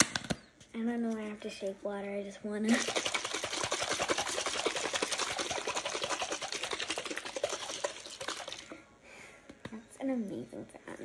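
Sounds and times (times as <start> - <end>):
water sloshing in plastic bottle: 2.7 - 8.8.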